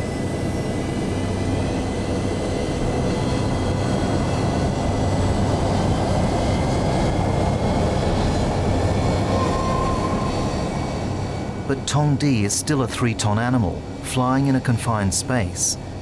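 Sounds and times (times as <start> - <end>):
aircraft engines running: 0.0 - 16.0
brief high tone: 9.4 - 10.7.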